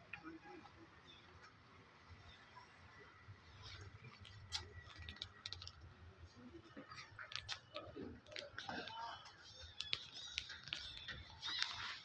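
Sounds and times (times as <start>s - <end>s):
faint voices: 0.0s - 12.0s
faint irregular clicks and taps: 6.7s - 11.8s.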